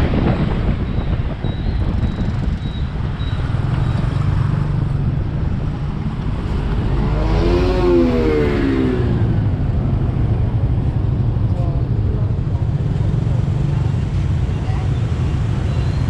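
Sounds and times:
wind rush: 0.0 - 14.5
surrounding traffic: 0.0 - 16.0
motorbike engine humming: 0.1 - 16.0
nearby engine revving: 6.8 - 9.4.

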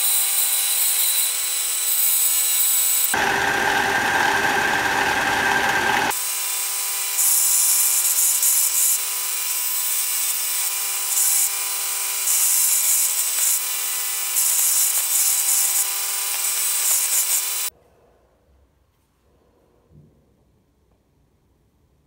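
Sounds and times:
belt sander humming: 3.1 - 6.2.

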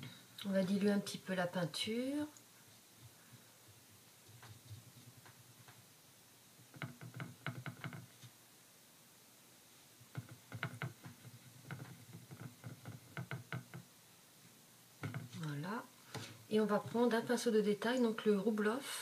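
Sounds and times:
paintbrush tapping on palette: 10.1 - 13.9.

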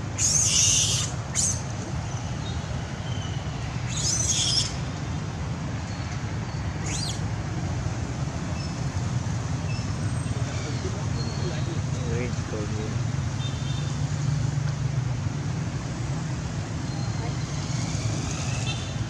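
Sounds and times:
high-pitched animal calls: 0.1 - 1.7, 3.9 - 4.8.

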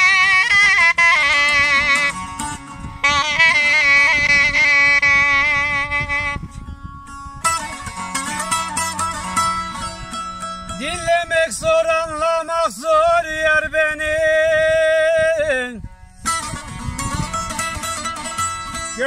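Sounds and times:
wavering held melody line: 0.0 - 12.0
lute strummed and plucked: 0.0 - 19.0.

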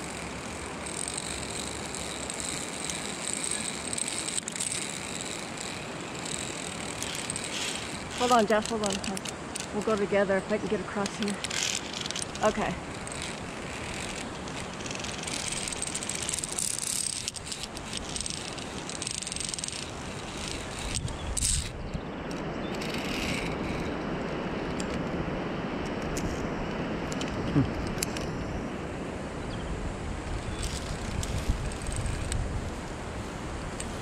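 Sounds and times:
metal carabiners clicking on cable: 0.0 - 24.0, 30.4 - 32.4.

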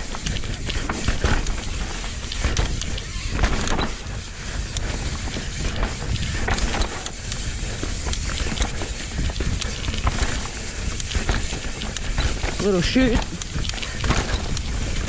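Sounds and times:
bike clattering over roots: 0.0 - 15.0
bike tyres rumbling on dirt: 0.0 - 15.0.

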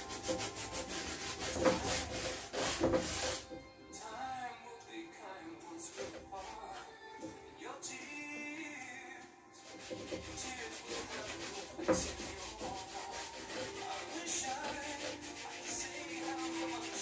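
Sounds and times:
painting tool scraping canvas: 0.0 - 3.6, 5.9 - 7.0, 9.6 - 17.0.

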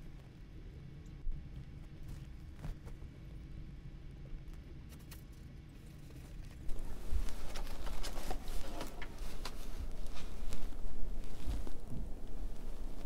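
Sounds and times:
paper pages rustling: 6.0 - 13.0.

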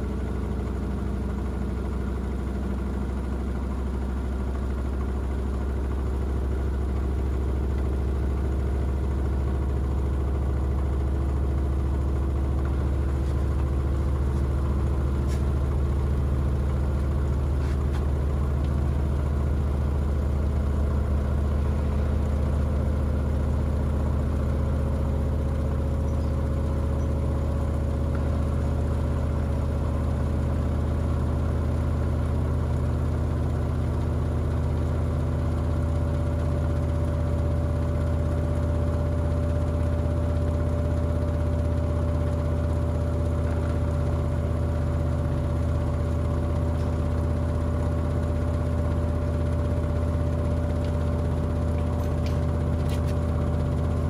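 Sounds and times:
washing machine humming: 4.7 - 31.9, 40.6 - 54.0.

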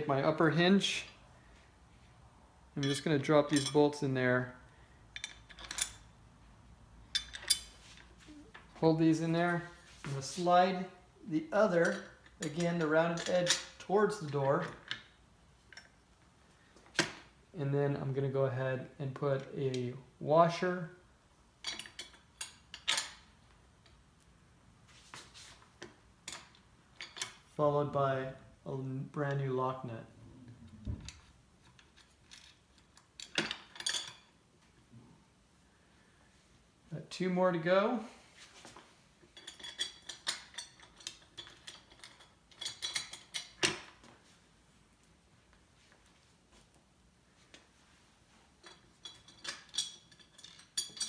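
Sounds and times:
metal hardware clinking: 2.8 - 4.2, 5.1 - 6.2, 7.0 - 8.6, 11.6 - 16.1, 21.6 - 24.0, 25.8 - 27.5, 30.5 - 34.4, 39.2 - 44.1, 48.6 - 51.0
metal washers clicking: 48.6 - 51.0.

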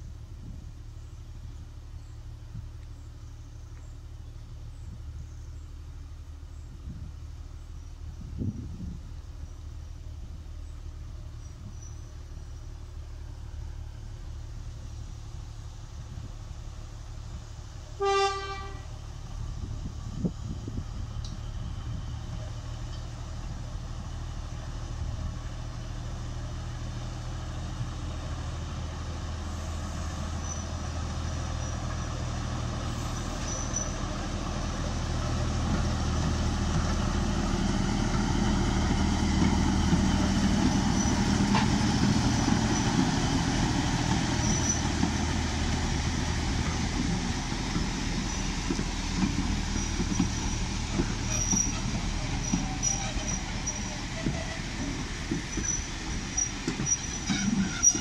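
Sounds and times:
diesel locomotive engine: 0.0 - 58.0
wheels clicking over rail joints: 20.2 - 58.0.

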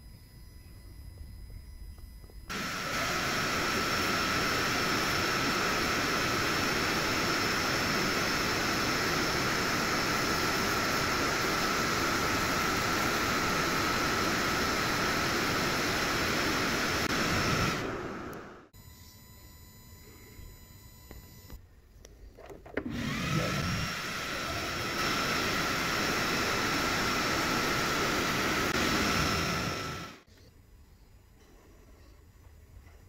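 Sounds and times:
hiss of rushing air with whistle: 2.5 - 18.3.

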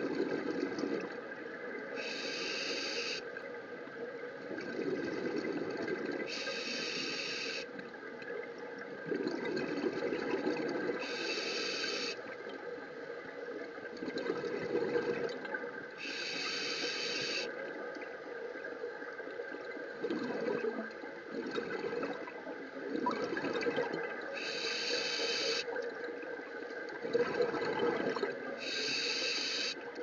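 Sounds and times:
regulator hissing inhalations: 2.0 - 3.2, 6.3 - 7.7, 11.0 - 12.2, 16.0 - 17.5, 24.4 - 25.7, 28.6 - 29.8
bubbling exhaled air: 9.0 - 12.2, 19.9 - 22.3, 22.9 - 25.7, 27.0 - 29.8.

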